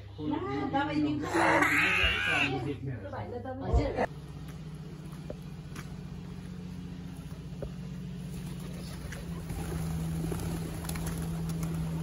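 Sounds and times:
engine droning: 2.9 - 12.0.

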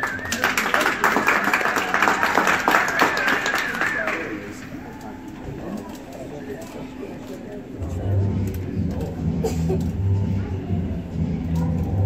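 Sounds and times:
high held cheer: 0.0 - 4.6
audience clapping: 0.0 - 4.8.

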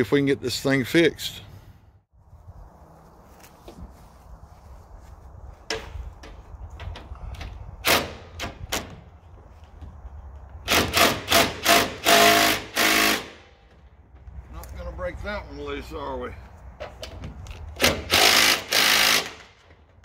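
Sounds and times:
cordless drill whirring: 18.1 - 19.4.

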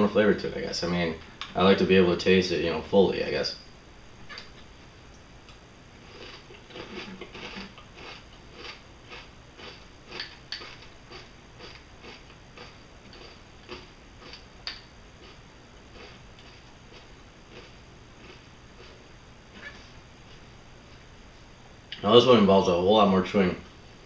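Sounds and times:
person chewing crunchy cereal: 6.0 - 19.0.

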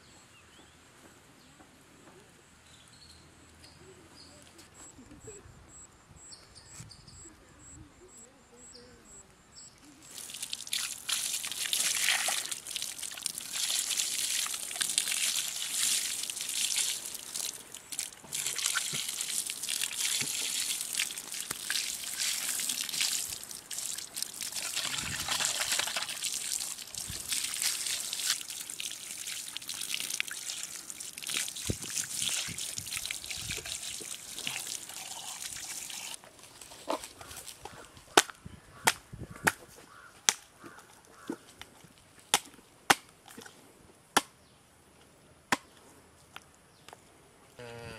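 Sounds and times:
water pouring and splashing: 10.1 - 37.6.

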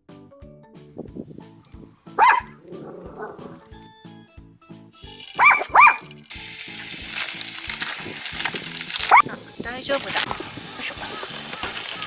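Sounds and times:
small dog barking: 2.2 - 3.6, 5.4 - 6.1, 9.0 - 9.4
vegetables sizzling in oil: 5.0 - 5.5, 6.2 - 12.0.

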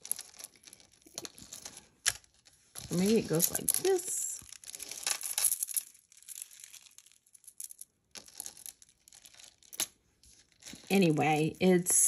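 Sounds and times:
beads rustling and clicking: 0.0 - 12.0.

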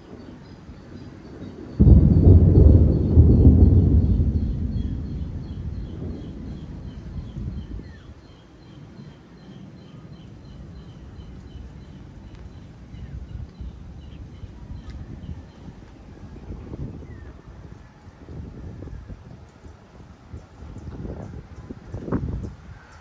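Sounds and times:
thunder rolling: 0.0 - 8.2
low uneven rumble: 1.0 - 8.4.

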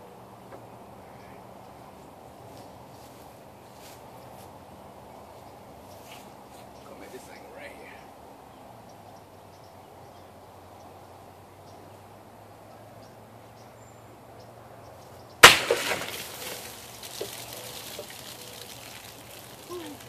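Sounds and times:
water splashing: 15.4 - 20.0.

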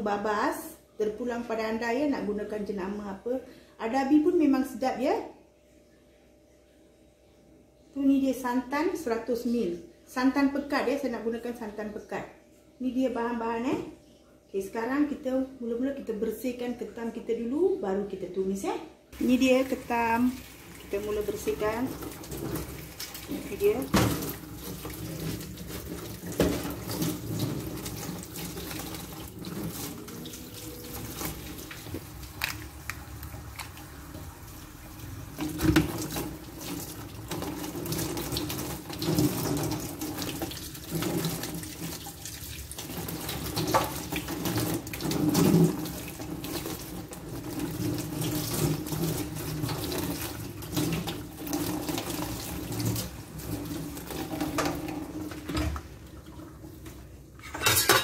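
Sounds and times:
tap running into a metal sink: 35.4 - 42.0.

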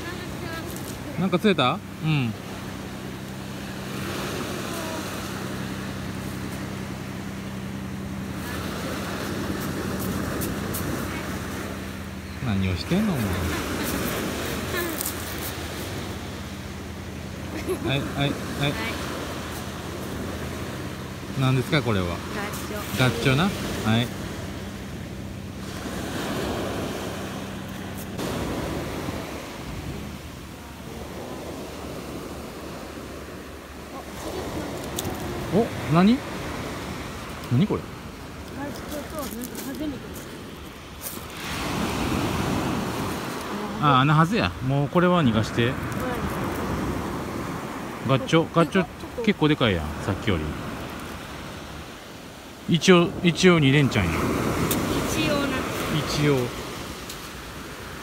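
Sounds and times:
steady low hum: 0.0 - 34.0
surf breaking on beach: 25.6 - 58.0
surf breaking on pebble beach: 41.0 - 44.2.

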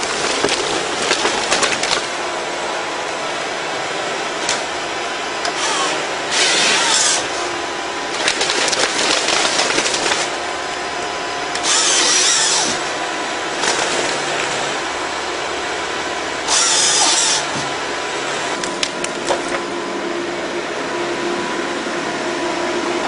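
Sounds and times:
diesel engine and hydraulics: 0.0 - 23.0
saw cutting log: 5.4 - 10.4, 11.5 - 13.0, 16.4 - 18.6.

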